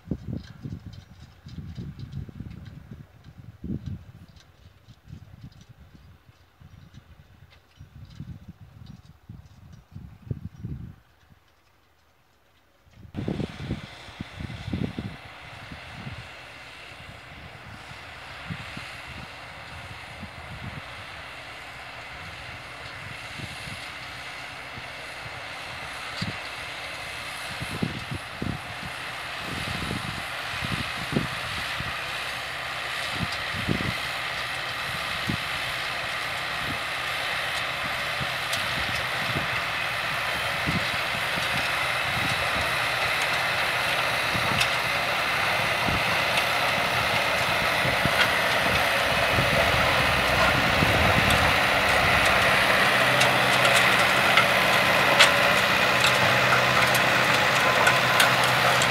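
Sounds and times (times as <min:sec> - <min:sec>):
tractor engine under load: 0:00.0 - 0:58.9
manure spreader spinners: 0:13.2 - 0:58.9.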